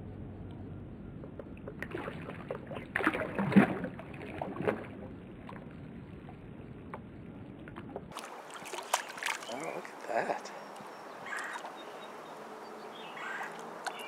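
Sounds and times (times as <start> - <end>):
fish splashing at water surface: 1.4 - 6.4, 7.6 - 10.0.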